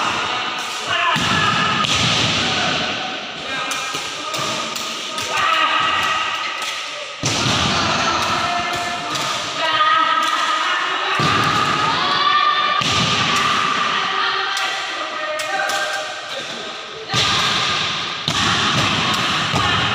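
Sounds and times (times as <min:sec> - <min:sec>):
people calling out: 0:00.0 - 0:19.9.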